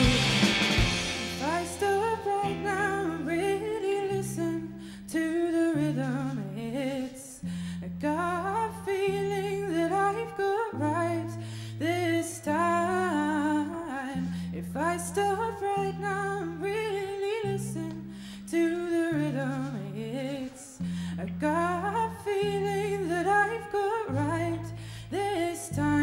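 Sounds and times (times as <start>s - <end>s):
bass guitar held notes: 0.0s - 3.4s
woman singing: 0.0s - 26.0s.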